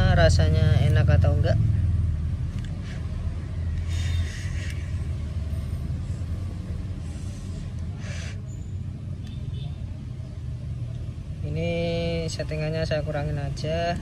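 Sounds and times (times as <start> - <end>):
steady low rumble: 0.0 - 8.1
breathy vaping hisses: 7.0 - 8.5.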